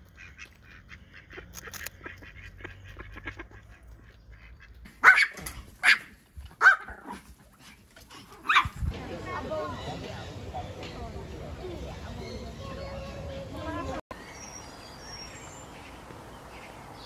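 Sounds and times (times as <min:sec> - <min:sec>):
small dogs barking: 0:05.0 - 0:07.3, 0:08.3 - 0:08.8.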